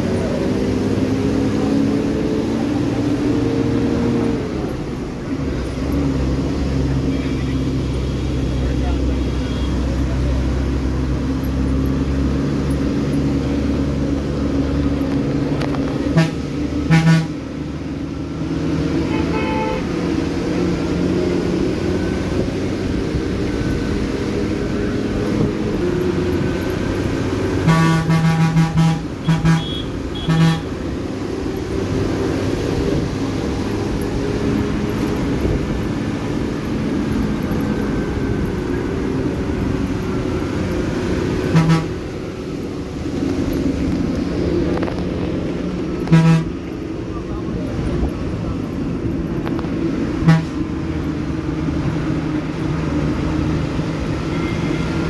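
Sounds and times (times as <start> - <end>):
bus engine running: 0.0 - 55.0
road and wind rumble: 0.0 - 55.0
horn honking: 16.0 - 17.4, 19.0 - 20.0, 27.6 - 30.8, 41.4 - 42.2, 46.0 - 46.7, 50.2 - 50.7.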